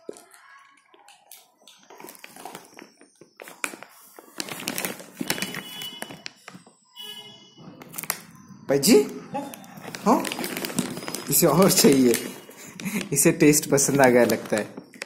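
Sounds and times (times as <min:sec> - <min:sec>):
puppy crunching dry kibble: 0:00.0 - 0:06.2, 0:09.8 - 0:15.0.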